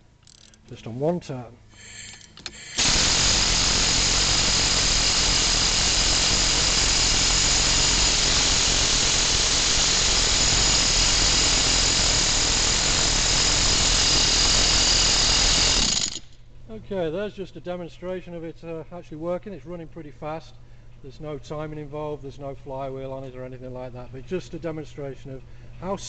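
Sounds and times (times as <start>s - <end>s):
chainsaw engine running on air: 2.8s - 16.2s.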